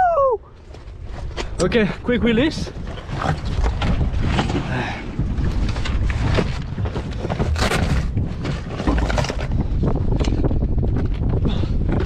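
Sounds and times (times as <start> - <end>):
wind rumbling on microphone: 0.0 - 12.0
knocks and thumps on boat deck: 2.8 - 12.0.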